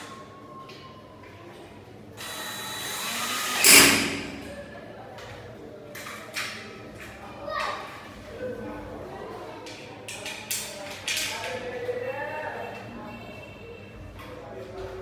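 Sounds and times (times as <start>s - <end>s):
cordless drill driving screw into metal: 2.2s - 4.4s.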